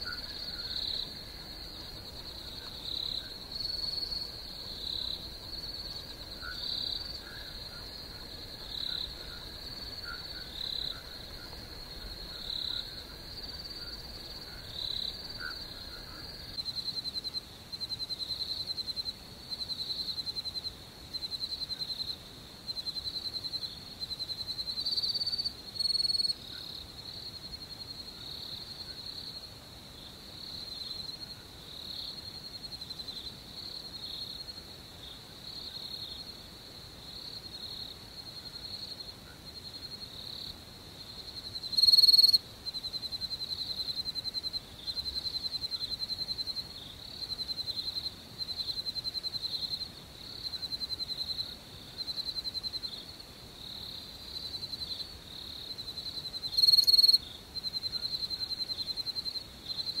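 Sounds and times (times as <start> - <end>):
crickets chirping: 0.0 - 60.0.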